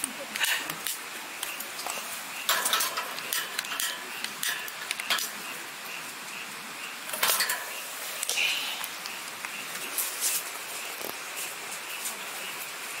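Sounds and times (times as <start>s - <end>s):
faint steady hiss: 0.0s - 13.0s
small metal rattles: 2.5s - 5.4s, 7.1s - 7.8s.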